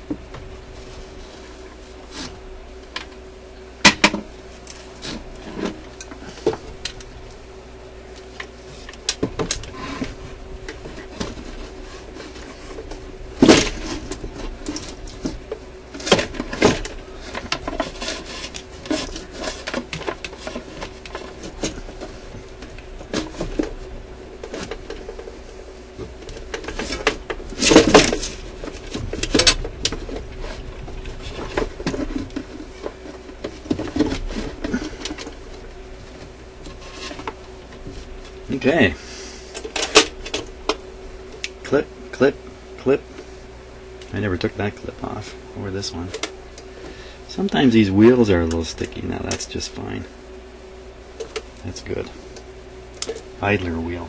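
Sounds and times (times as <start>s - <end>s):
record player handling clicks and knocks: 3.8s - 7.1s, 8.2s - 9.8s, 10.6s - 23.8s, 26.0s - 35.5s, 39.5s - 40.8s.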